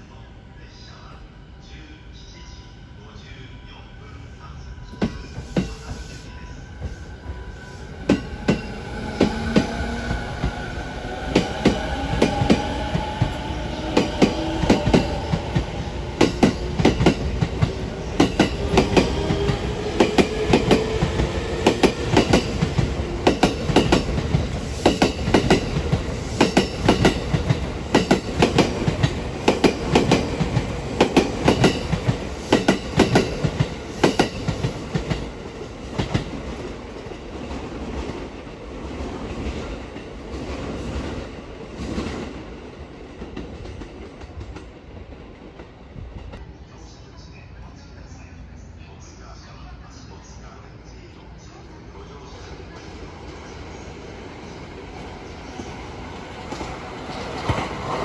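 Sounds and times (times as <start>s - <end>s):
train wheels clacking on rail joints: 16.2s - 35.2s.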